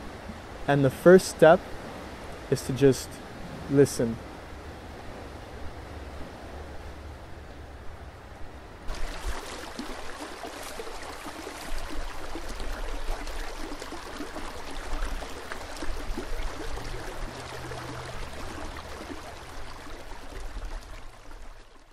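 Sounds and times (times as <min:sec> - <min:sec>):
creek running over stones: 0:08.9 - 0:21.9.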